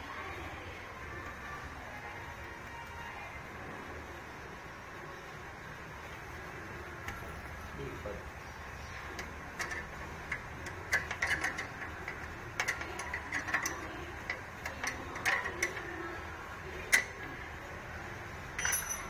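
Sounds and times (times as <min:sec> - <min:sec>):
small metal clicks and taps: 0:09.1 - 0:15.9.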